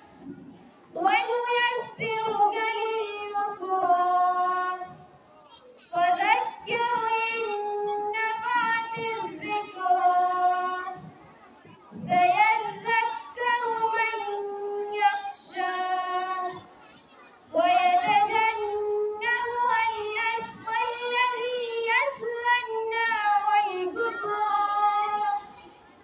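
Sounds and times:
girl reciting in melodic chant: 0.9s - 26.0s.

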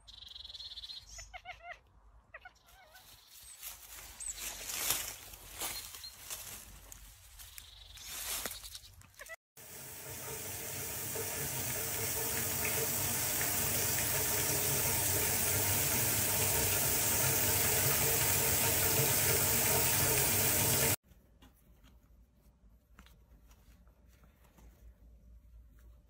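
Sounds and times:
tap water running into bath: 9.6s - 21.0s.

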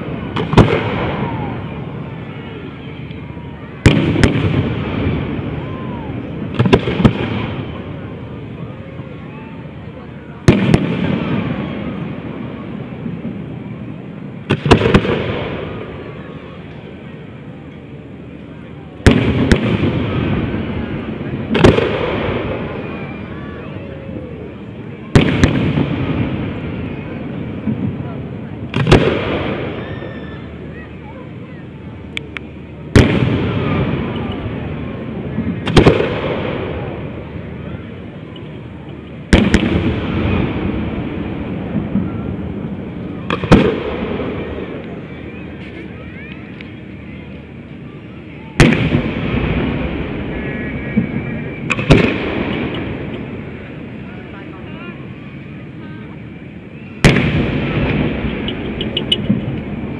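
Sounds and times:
echoing firework rumble: 0.0s - 59.9s
firework bangs: 0.0s - 59.9s.

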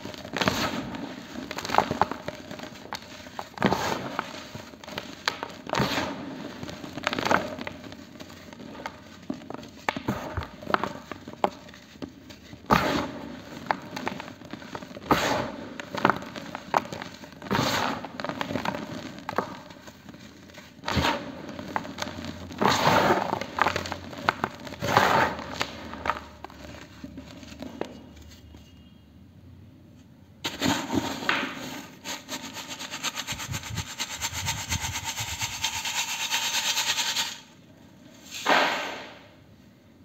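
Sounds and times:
hands crumbling dry cement: 0.0s - 28.7s.

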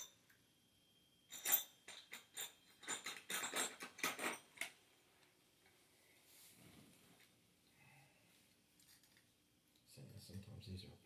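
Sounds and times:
clicks and rustles of handled parts: 1.3s - 4.8s, 8.8s - 9.3s.

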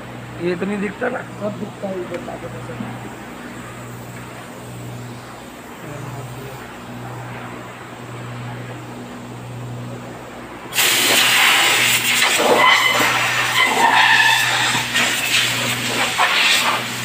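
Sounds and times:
low machine hum: 0.0s - 17.0s
compressed air hose hissing: 10.7s - 17.0s.

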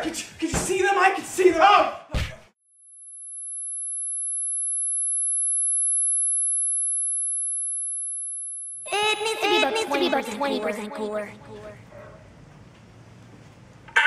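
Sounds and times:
high-pitched ringing tone: 2.7s - 9.8s.

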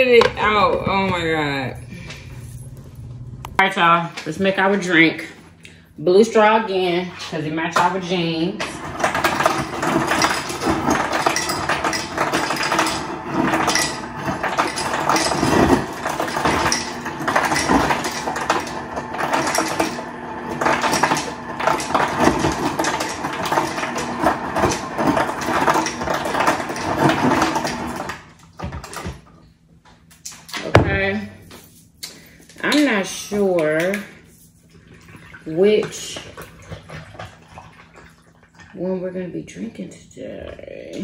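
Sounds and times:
kitchen rattling and clinking: 7.6s - 29.4s.

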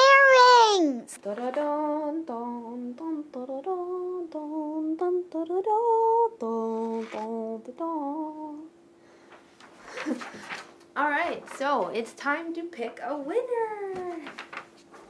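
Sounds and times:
girl singing wordless tune: 0.0s - 8.8s.

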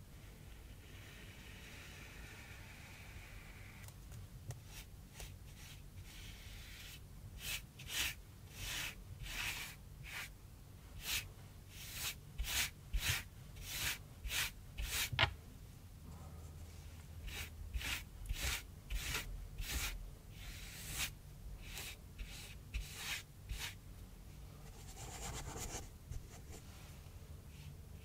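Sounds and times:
brush swishing paint on cardboard: 4.6s - 10.3s, 11.0s - 15.2s, 17.2s - 23.8s.

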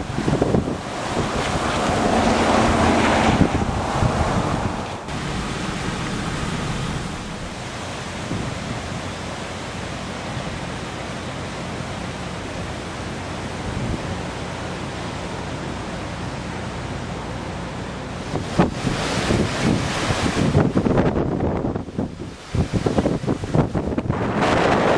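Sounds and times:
wind on microphone: 0.0s - 9.7s, 18.2s - 24.9s.

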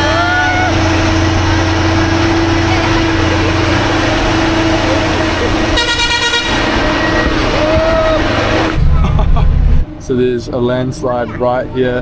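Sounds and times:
bus engine and road noise: 0.0s - 12.0s
bus horn blast: 0.7s - 7.6s.

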